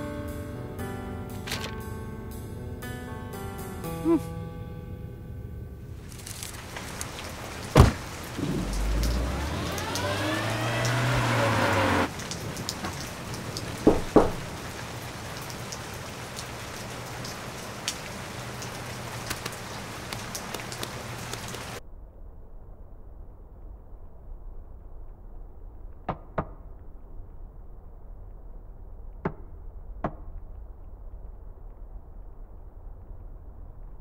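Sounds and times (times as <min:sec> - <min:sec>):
low rumble with whoosh: 0:06.6 - 0:13.2, 0:21.8 - 0:26.1, 0:26.7 - 0:34.0
sharp thump: 0:07.7 - 0:09.0
knocks on door: 0:13.8 - 0:14.4.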